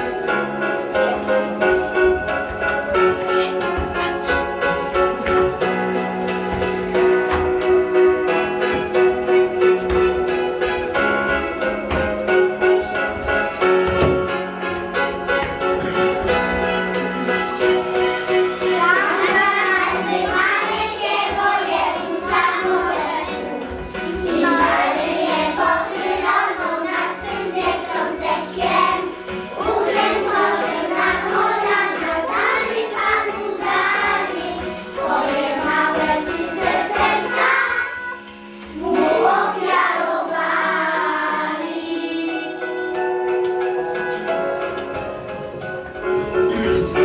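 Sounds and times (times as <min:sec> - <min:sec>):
instrumental backing music: 0:00.0 - 0:47.0
young children singing: 0:17.9 - 0:44.2.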